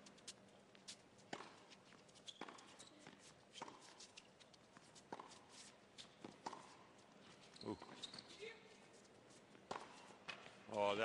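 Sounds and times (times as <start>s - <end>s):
tennis ball struck by racquets: 1.3s - 1.6s, 9.7s - 10.5s.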